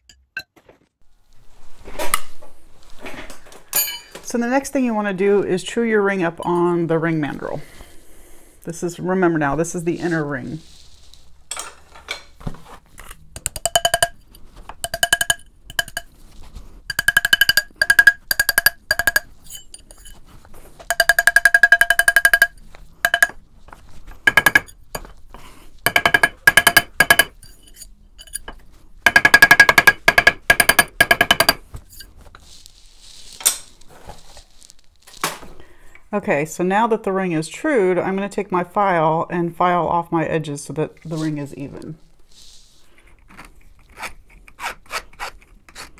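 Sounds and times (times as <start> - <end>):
hammer tapping metal ring: 13.4 - 16.1, 16.9 - 20.1, 20.9 - 23.4, 24.3 - 25.1, 25.9 - 27.4, 29.1 - 31.6
mandrel ringing: 13.4 - 16.1, 16.9 - 20.2, 20.9 - 23.4.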